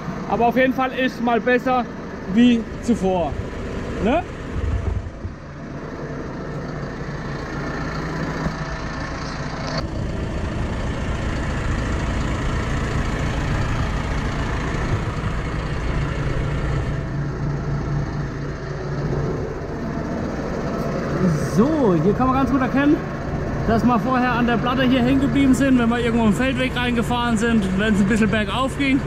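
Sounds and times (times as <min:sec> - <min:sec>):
tractor engine idling: 0:00.0 - 0:29.0.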